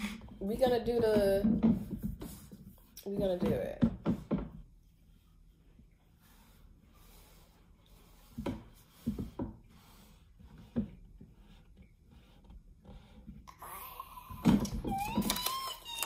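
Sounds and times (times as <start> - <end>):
paint roller rubbing over paper: 0.0 - 13.5.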